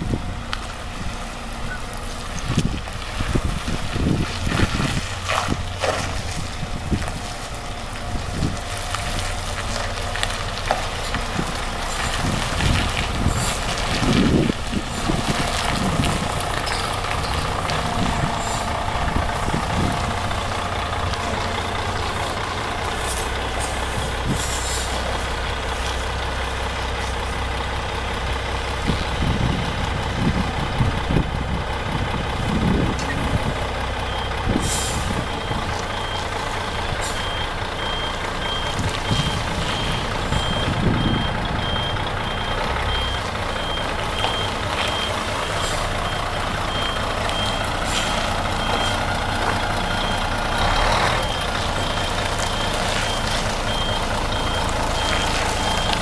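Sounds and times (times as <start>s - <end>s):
bus diesel engine running: 0.0s - 56.0s
air brakes hissing: 23.0s - 25.1s, 34.6s - 35.2s, 45.5s - 45.9s.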